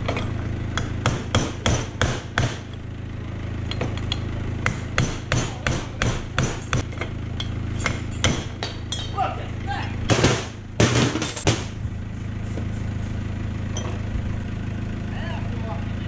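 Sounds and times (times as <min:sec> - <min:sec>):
hammer tapping metal punch: 0:03.7 - 0:09.2.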